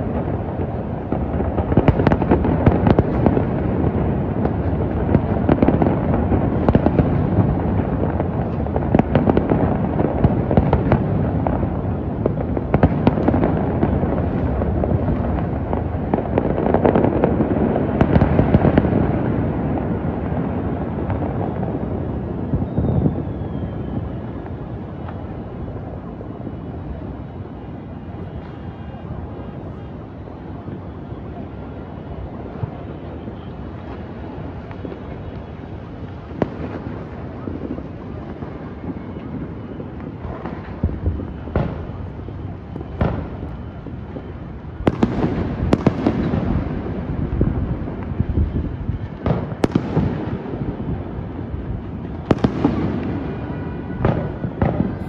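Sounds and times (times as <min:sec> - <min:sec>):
rumble of firework bangs: 0:00.0 - 0:55.0
sharp firework cracks: 0:34.6 - 0:55.0.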